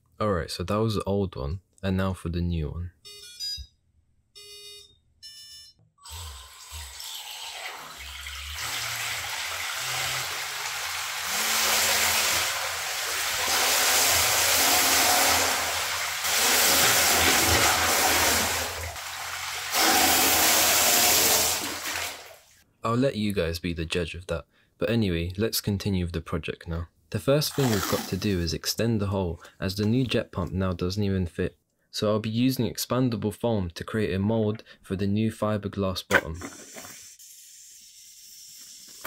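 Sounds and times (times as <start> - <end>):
water jet rushing: 8.6 - 22.3, 27.5 - 28.3.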